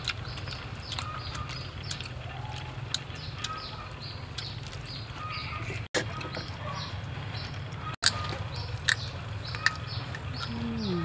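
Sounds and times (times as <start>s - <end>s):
crispy chicken chewing clicks: 0.0s - 5.3s, 8.0s - 10.6s
small birds chirping: 0.0s - 11.0s.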